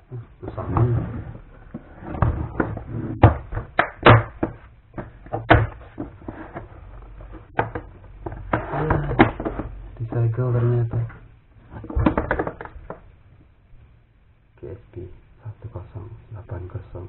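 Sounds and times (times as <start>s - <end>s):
plastic case clacking: 7.4s - 9.8s, 11.8s - 13.0s.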